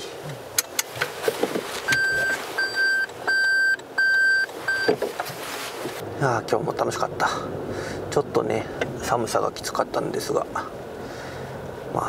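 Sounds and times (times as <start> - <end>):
car warning beeps: 1.9 - 5.0.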